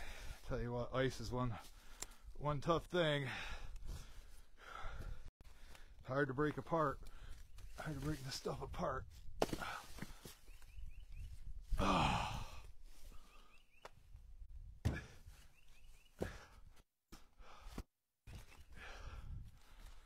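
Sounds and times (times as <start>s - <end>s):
man sighing: 11.7s - 12.7s.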